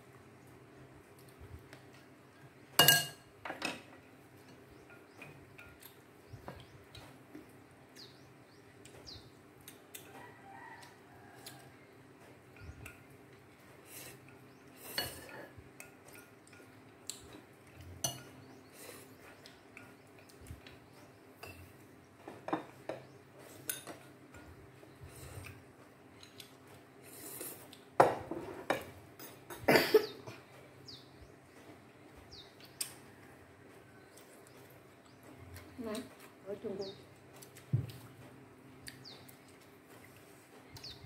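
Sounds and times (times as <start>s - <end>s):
utensils clinking on ceramic bowls: 2.8s - 3.8s, 17.8s - 18.4s.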